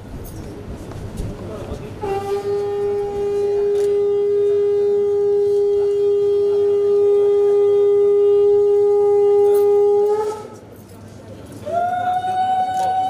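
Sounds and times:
conch shell blown: 2.0s - 10.6s, 11.6s - 13.0s.

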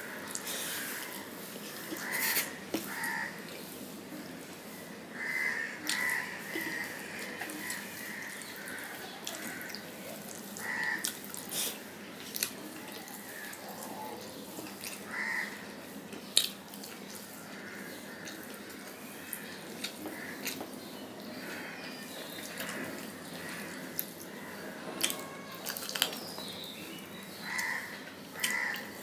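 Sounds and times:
chewing: 8.5s - 15.1s, 16.3s - 17.3s, 18.2s - 21.4s, 25.0s - 26.3s.

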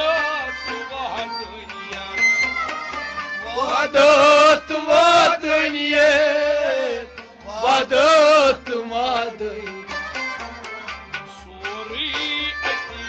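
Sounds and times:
harmonium: 0.0s - 13.0s
man singing: 0.0s - 13.0s.

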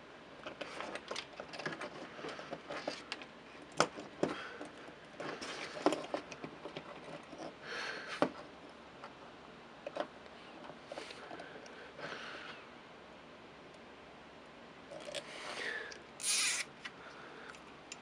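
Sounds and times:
hands rustling plastic parts: 0.4s - 9.2s, 14.9s - 18.0s.

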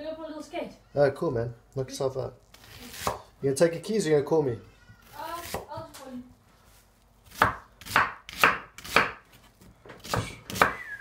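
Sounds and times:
knife chopping onion on wooden board: 2.9s - 3.3s, 5.4s - 5.8s, 7.2s - 9.4s, 10.0s - 10.8s.

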